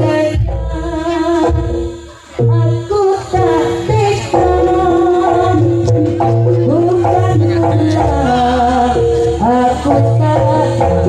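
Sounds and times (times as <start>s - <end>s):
hand drum and gamelan percussion: 0.0s - 11.0s
wavering sliding melody: 2.4s - 11.0s.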